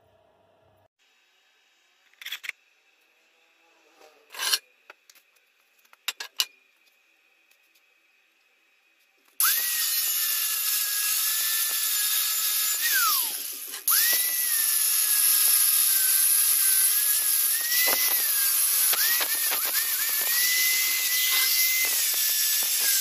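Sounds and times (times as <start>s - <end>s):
angle grinder cutting metal: 4.0s - 4.7s, 9.4s - 23.0s.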